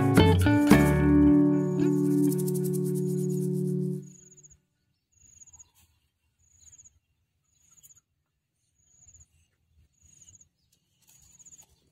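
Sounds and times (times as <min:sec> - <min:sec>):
insect chirping: 0:01.4 - 0:04.6.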